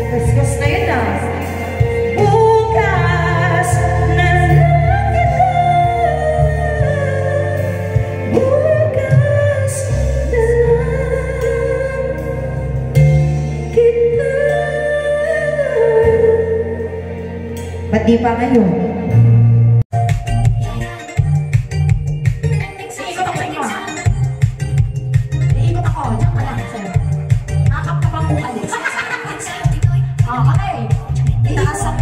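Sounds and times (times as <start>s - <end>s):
woman singing into microphone: 0.0s - 17.2s, 25.5s - 32.0s
backing track with bass line: 0.0s - 32.0s.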